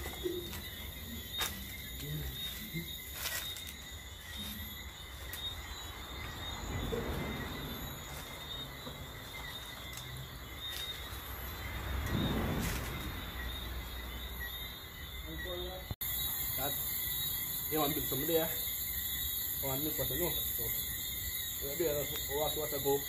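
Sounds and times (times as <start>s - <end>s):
rustling noise: 0.0s - 13.6s
crickets trilling: 0.0s - 23.0s.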